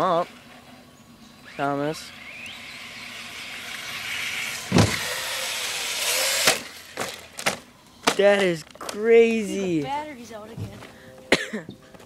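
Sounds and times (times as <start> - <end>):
electric motor whining: 0.0 - 7.8
toy truck hitting ground: 3.1 - 8.9.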